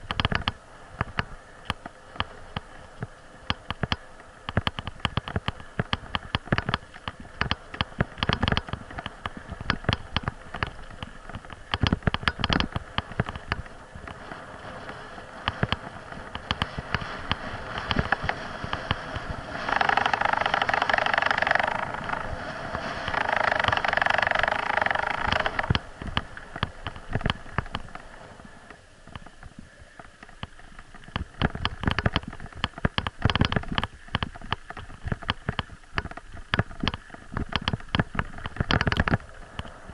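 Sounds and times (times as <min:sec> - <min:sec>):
bicycle rattling and knocking: 0:00.0 - 0:28.0, 0:29.1 - 0:39.7.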